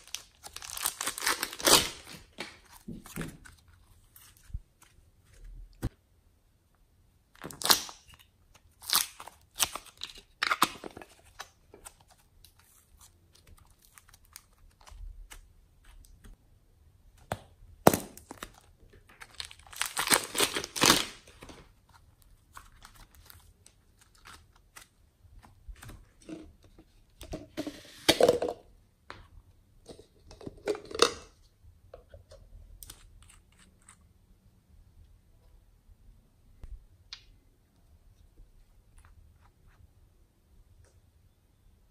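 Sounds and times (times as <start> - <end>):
plastic bag crinkling: 0.0 - 2.4
plastic tearing: 0.0 - 3.6, 17.8 - 24.9.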